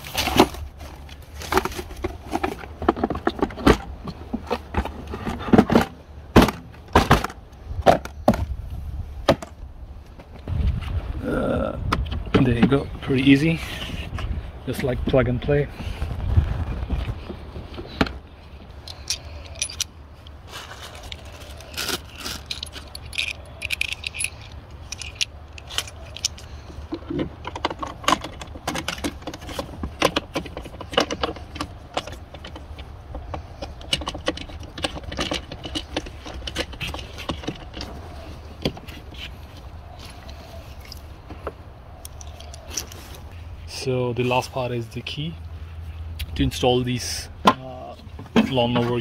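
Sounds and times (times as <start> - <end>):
plastic levers clicking and rattling: 21.9 - 37.9.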